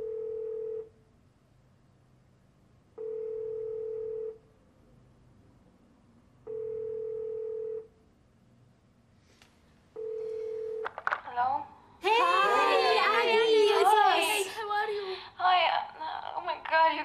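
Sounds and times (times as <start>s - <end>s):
telephone ringback tone: 0.0s - 0.9s, 3.0s - 4.4s, 6.5s - 7.9s, 10.0s - 10.8s.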